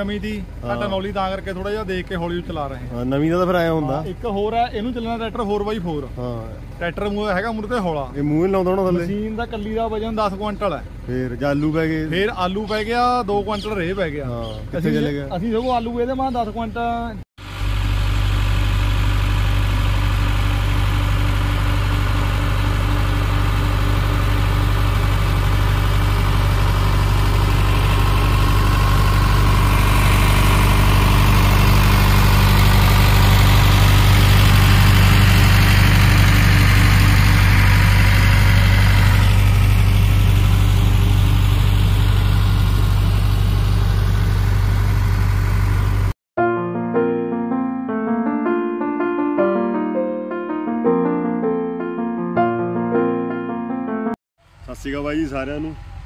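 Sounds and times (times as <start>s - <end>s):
tractor diesel engine running: 0.0s - 16.8s, 17.4s - 46.2s, 54.4s - 56.0s.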